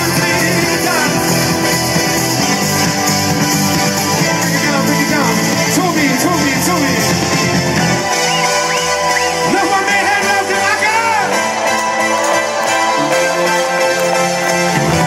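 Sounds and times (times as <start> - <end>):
person singing: 0.0 - 2.1
guitar: 0.0 - 15.0
live pop-rock band over pa: 0.0 - 15.0.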